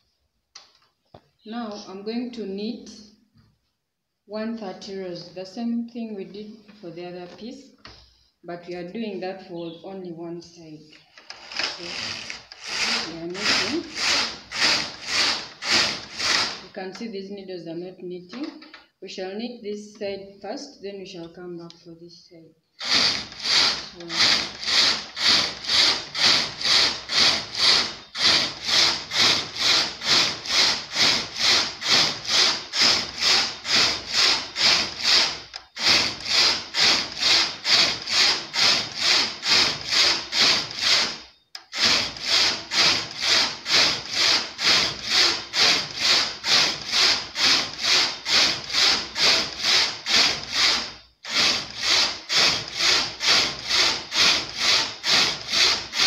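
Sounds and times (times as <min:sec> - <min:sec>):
knitting machine carriage rasping: 0:11.2 - 0:16.7, 0:22.8 - 0:56.0.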